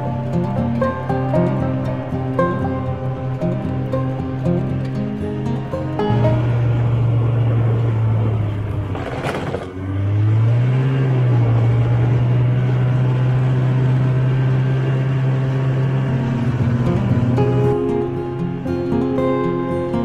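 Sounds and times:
snowmobile engine running: 0.0 - 20.0.

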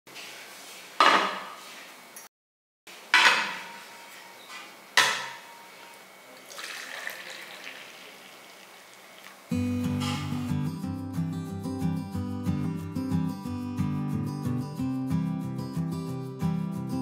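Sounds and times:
coffee pouring into cup: 6.4 - 9.6
metal cups clinking: 6.5 - 9.3.

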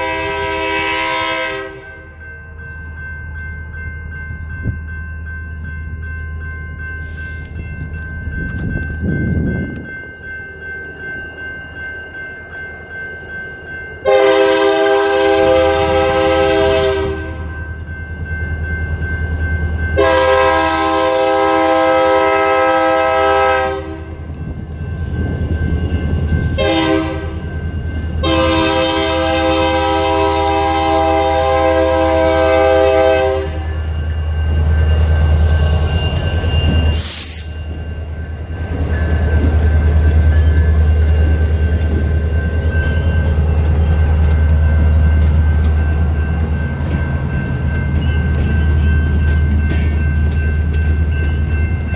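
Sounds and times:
locomotive air horn blasts: 0.0 - 2.0, 14.0 - 17.4, 20.0 - 24.2, 26.6 - 27.4, 28.2 - 33.7
crossing bell ringing: 0.0 - 51.9.

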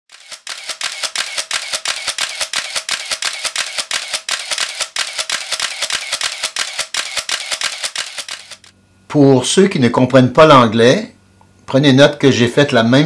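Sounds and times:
camera shutter clicking in bursts: 0.1 - 8.7.

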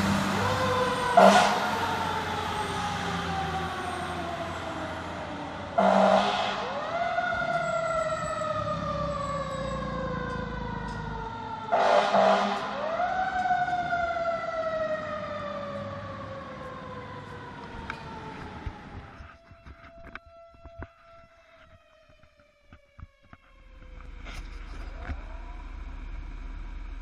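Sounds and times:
mechanical siren wailing: 0.2 - 27.0
air horn blast: 1.2 - 1.8, 5.8 - 6.8, 11.7 - 12.8.

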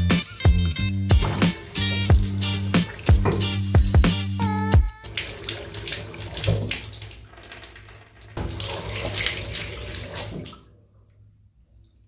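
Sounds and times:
tap water running onto hand: 1.1 - 10.6.

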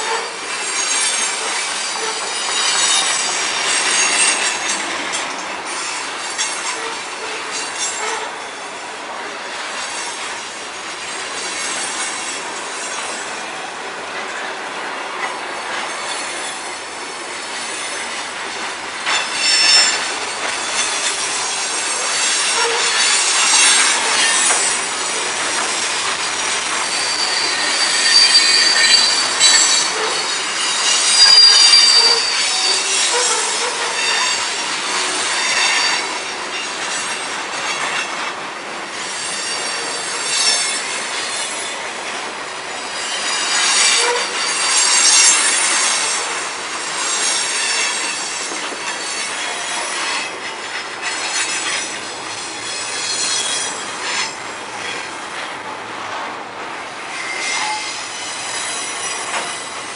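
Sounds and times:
steel wheels rolling on rails: 0.0 - 59.9
high-pitched flange squeal: 25.4 - 36.3, 57.2 - 59.9.

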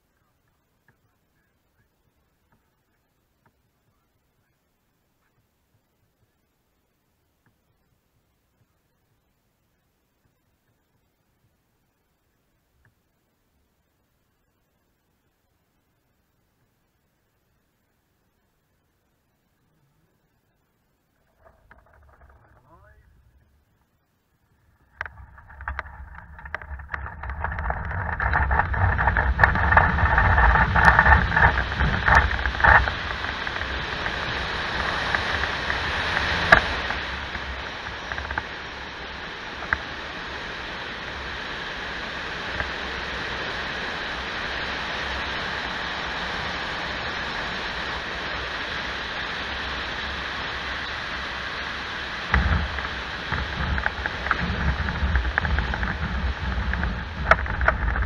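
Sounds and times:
wheel rumbling over grass: 21.2 - 23.7, 24.6 - 58.0
airflow noise: 24.4 - 58.0.

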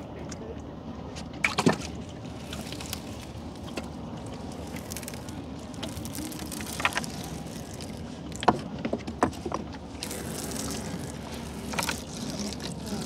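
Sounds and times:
water dripping and splashing: 1.4 - 8.4, 9.9 - 13.0.

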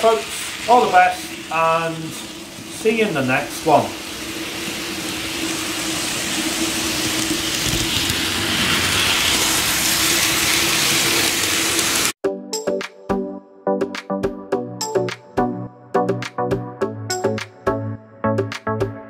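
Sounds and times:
electronic music: 12.2 - 19.0.

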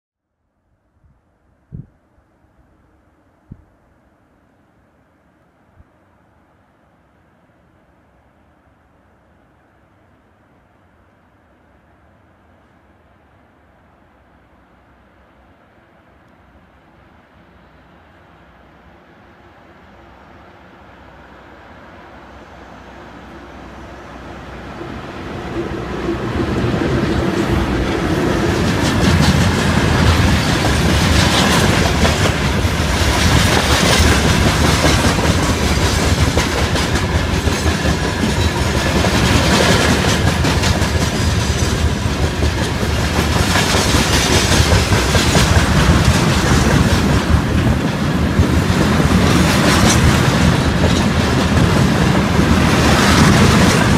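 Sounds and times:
electric locomotive passing: 4.1 - 53.9
freight train rumbling past: 11.4 - 53.9
wheels clacking over rail joints: 25.5 - 53.9.

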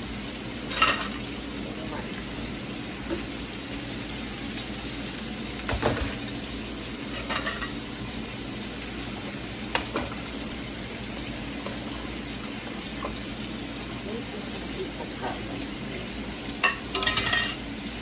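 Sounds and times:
beef sizzling in a frying pan: 0.0 - 18.0
metal pot lids clinking: 16.6 - 17.6.

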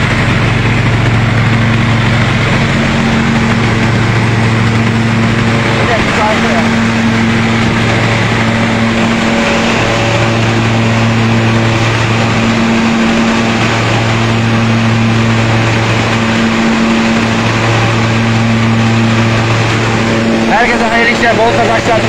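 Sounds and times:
husking machine engine hum: 0.0 - 22.0
threshing drum rushing: 0.0 - 22.0.

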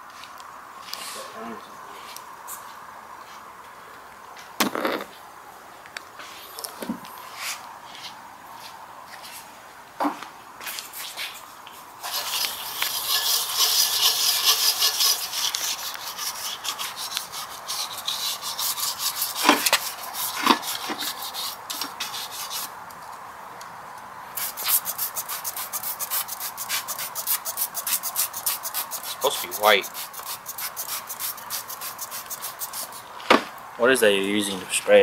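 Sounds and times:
rough rubbing by hand: 12.0 - 22.7, 24.4 - 33.3
spray bottle squirts: 24.4 - 33.0.

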